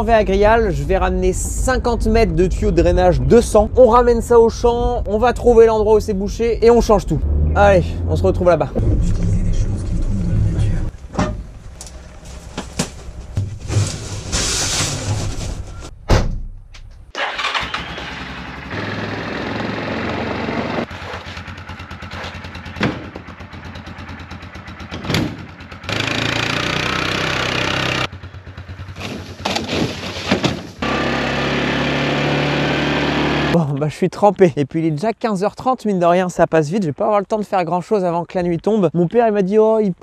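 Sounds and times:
metal knocks and clunks: 0:10.9 - 0:14.0, 0:15.0 - 0:17.1, 0:22.7 - 0:23.4, 0:24.8 - 0:25.6
quad bike engine running: 0:17.6 - 0:29.7, 0:30.8 - 0:33.6.

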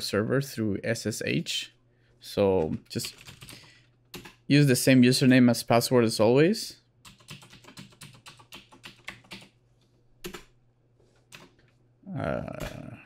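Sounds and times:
computer keyboard typing: 0:02.6 - 0:04.4, 0:07.0 - 0:09.6, 0:10.2 - 0:10.5, 0:11.3 - 0:11.7.

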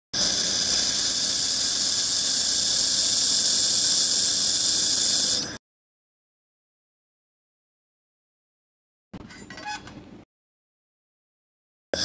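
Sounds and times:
laser welder hissing: 0:00.2 - 0:05.6.

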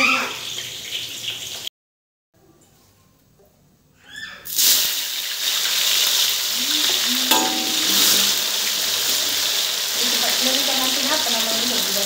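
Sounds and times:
fish sizzling in hot oil: 0:00.0 - 0:01.7, 0:04.5 - 0:12.0
metal spatula knocking on wok: 0:07.3 - 0:08.8.

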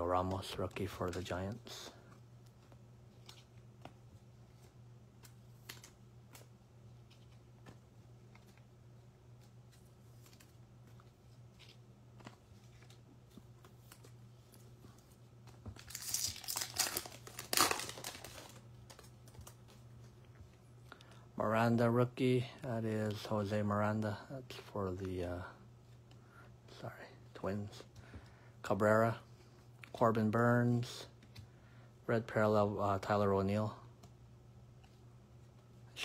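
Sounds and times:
steady low hum: 0:00.0 - 0:36.0
foil wrapper tearing and crinkling: 0:15.8 - 0:18.6.

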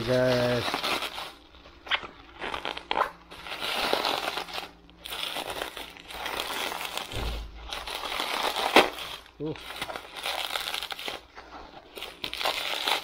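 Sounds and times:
bubble wrap crinkling: 0:00.0 - 0:13.0
low bump: 0:07.1 - 0:08.0.

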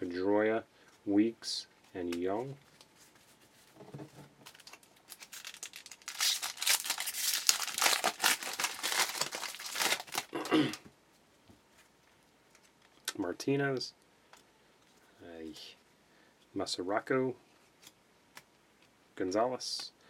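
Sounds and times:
foil wrapper tearing and crinkling: 0:04.5 - 0:10.4.

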